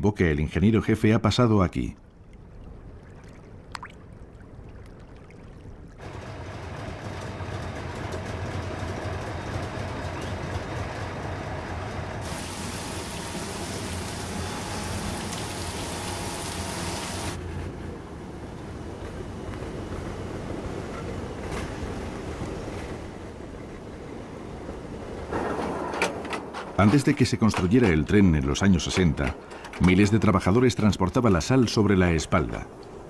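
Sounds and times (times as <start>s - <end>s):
low mechanical rumble: 5.6s - 21.4s
rushing noise: 11.0s - 23.1s
loud hiss: 12.2s - 17.4s.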